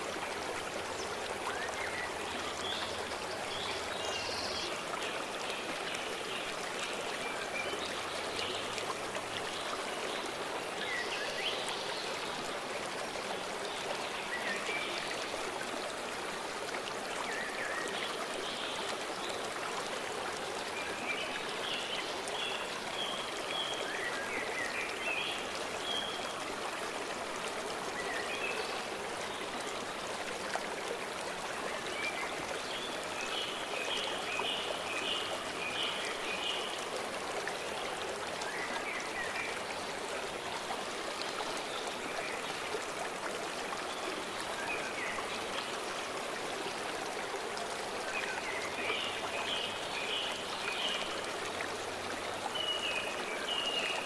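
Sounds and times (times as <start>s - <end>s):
stream rushing: 0.0s - 54.0s.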